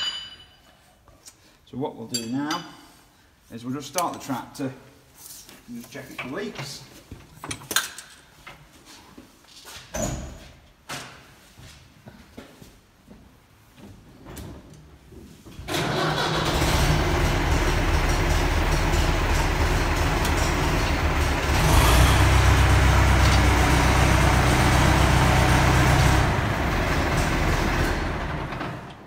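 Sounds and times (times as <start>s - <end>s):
tractor diesel engine running: 15.8s - 29.0s.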